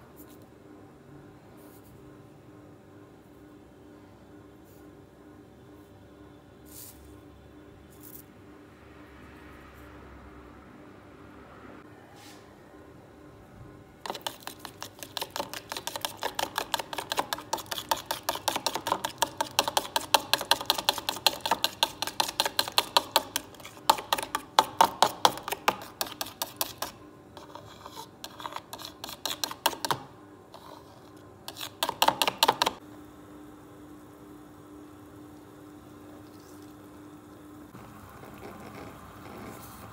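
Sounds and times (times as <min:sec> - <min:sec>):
whisk clicking against bowl: 0:14.1 - 0:27.6, 0:28.3 - 0:30.1, 0:31.5 - 0:32.8.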